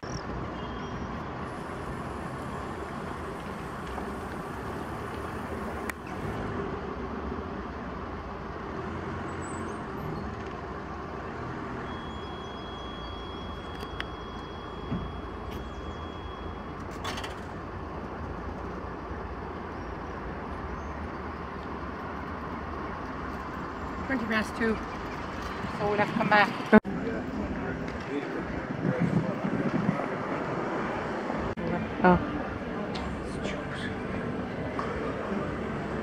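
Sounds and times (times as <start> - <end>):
street traffic: 0.0 - 36.0
high steady beep: 11.8 - 16.9.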